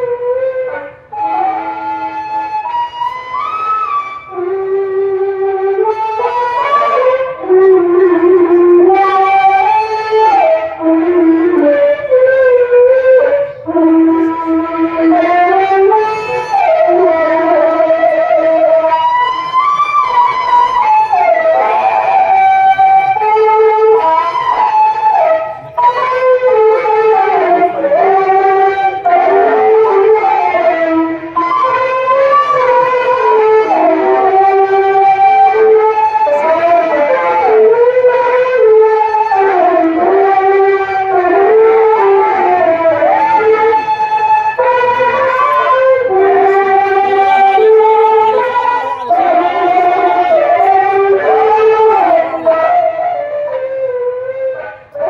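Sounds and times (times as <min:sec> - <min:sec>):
ornamented sliding vocal melody: 0:21.1 - 0:38.5, 0:39.8 - 0:55.0.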